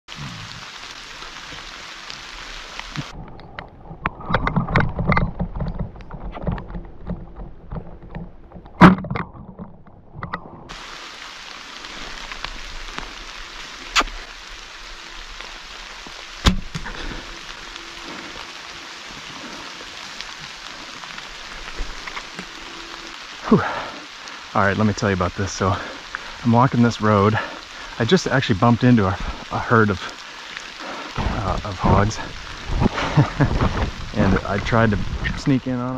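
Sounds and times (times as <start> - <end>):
rain on leaf litter: 0.1 - 3.7, 10.7 - 35.9
rustling through wet brush: 10.7 - 35.8.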